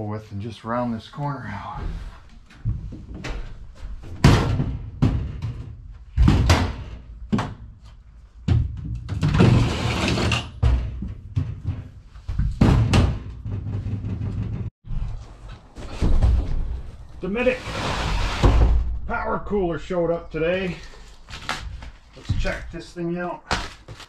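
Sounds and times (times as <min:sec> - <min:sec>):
rough scraping noise: 0:17.2 - 0:18.7.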